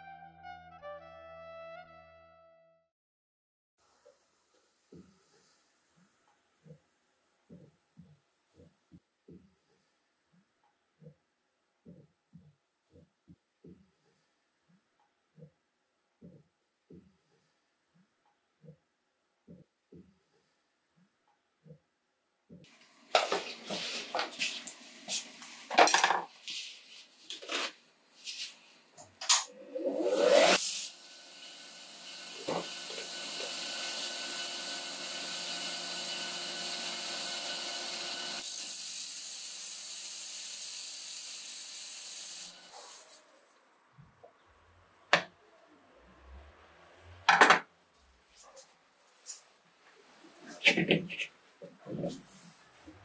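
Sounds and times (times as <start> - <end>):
tools and wood clattering on bench: 23.2 - 24.5, 25.7 - 26.4, 32.4 - 33.1, 47.3 - 47.7
power tool running: 29.6 - 43.2.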